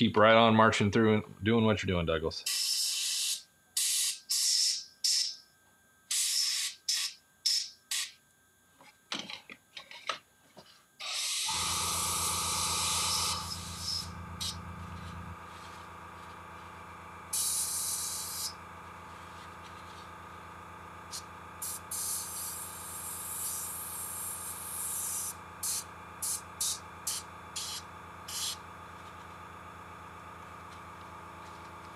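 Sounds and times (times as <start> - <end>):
airbrush spraying bursts: 2.5 - 5.4, 6.1 - 8.1, 11.0 - 15.9, 17.3 - 18.6, 21.1 - 28.6
steady motor hum: 10.5 - 31.9.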